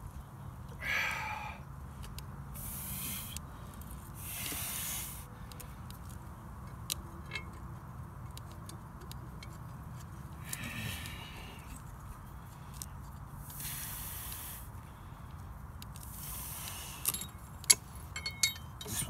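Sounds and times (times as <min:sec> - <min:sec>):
hissing rustles: 0:02.5 - 0:06.2, 0:10.4 - 0:18.1.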